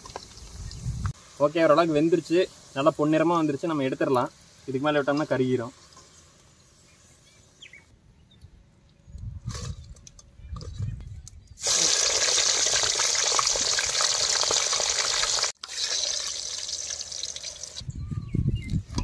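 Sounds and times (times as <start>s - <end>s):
oil sizzling in a wok: 0.0s - 5.3s, 11.6s - 17.8s.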